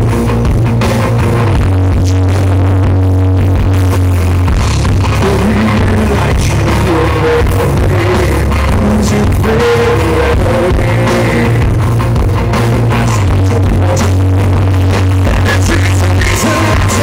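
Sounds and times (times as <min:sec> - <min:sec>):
live rock band: 0:00.0 - 0:17.0
man singing: 0:01.2 - 0:02.7, 0:05.0 - 0:11.8, 0:12.5 - 0:17.0.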